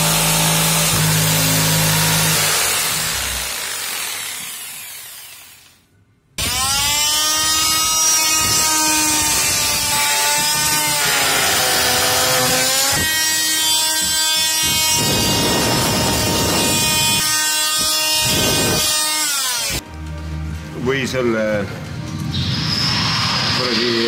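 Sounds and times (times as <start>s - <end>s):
electric saw cutting wood: 0.0s - 5.8s, 6.4s - 19.8s.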